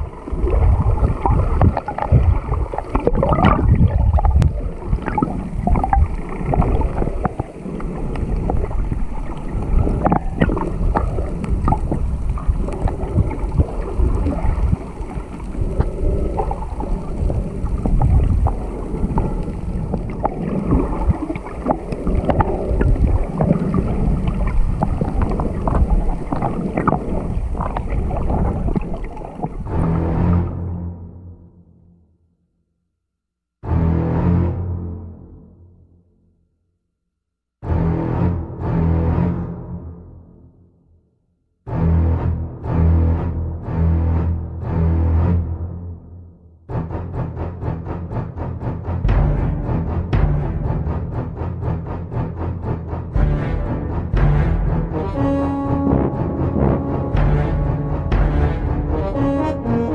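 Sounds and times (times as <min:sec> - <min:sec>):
water rushing underwater: 0:00.0 - 0:30.9, 0:53.1 - 0:59.9.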